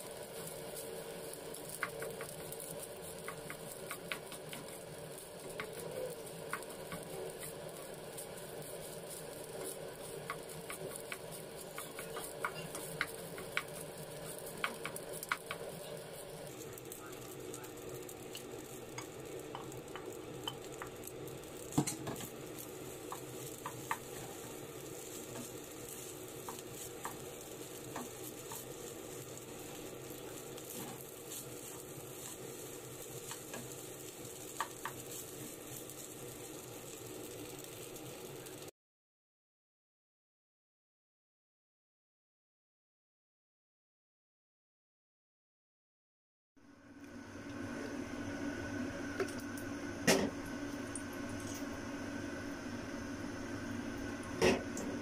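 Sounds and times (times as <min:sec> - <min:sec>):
rice sizzling in a pan: 0:00.0 - 0:38.7, 0:46.8 - 0:55.0
wooden spatula scraping a pan: 0:01.6 - 0:16.3, 0:30.3 - 0:32.4
spatula tapping against pan: 0:34.6 - 0:35.0.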